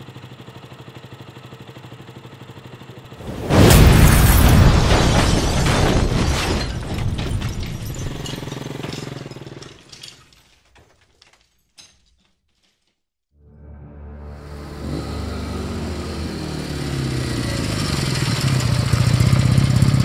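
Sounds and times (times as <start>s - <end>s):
explosion blast: 3.2s - 8.4s
glass and debris clattering: 3.3s - 12.9s.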